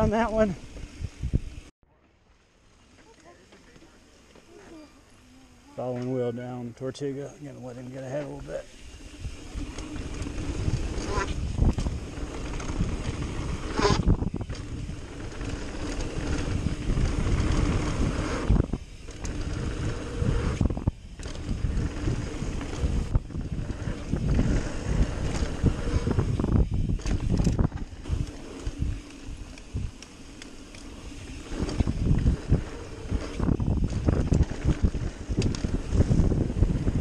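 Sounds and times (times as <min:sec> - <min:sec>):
wind rushing over microphone: 0:00.0 - 0:01.7, 0:09.0 - 0:30.1, 0:31.0 - 0:37.0
tyres rolling on dirt: 0:05.8 - 0:37.0
bike rattling over bumps: 0:07.9 - 0:37.0.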